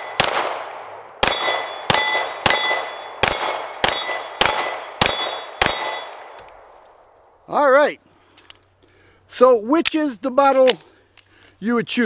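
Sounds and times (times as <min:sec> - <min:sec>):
steel plate target ringing: 0:00.0 - 0:00.3, 0:01.2 - 0:06.5
pistol shots: 0:00.0 - 0:06.4.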